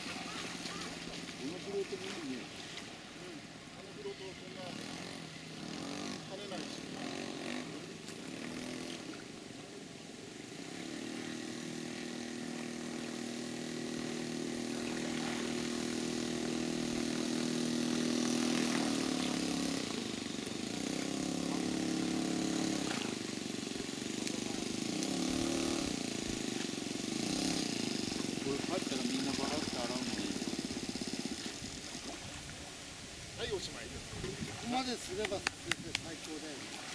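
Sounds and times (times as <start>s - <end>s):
model plane engine revving: 3.9s - 9.4s, 10.4s - 32.1s
water hissing from floats: 10.2s - 33.8s.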